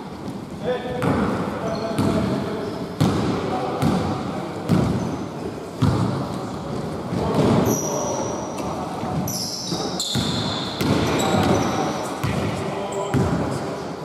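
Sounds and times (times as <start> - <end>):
sneaker squeaks: 1.0 - 3.1, 7.4 - 13.3
basketball bouncing on wood floor: 4.7 - 5.0, 5.8 - 6.2, 9.7 - 12.4.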